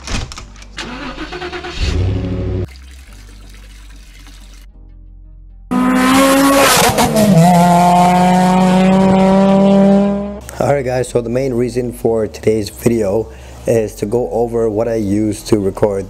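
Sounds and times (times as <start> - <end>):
car engine starting and idling: 0.8 - 2.7.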